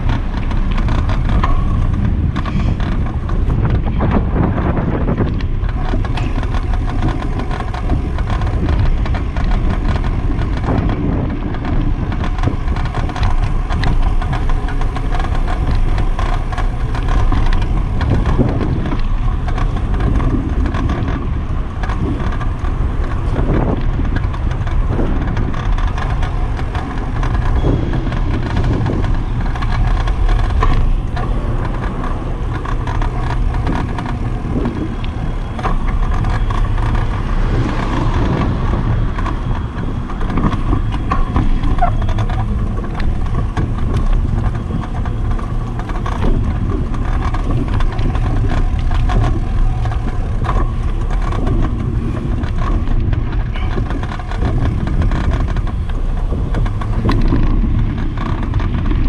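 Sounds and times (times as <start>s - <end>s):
bicycle rattles and knocks: 0.0s - 59.0s
tyres rumbling on pavement: 0.0s - 59.0s
wind on microphone: 0.0s - 59.0s.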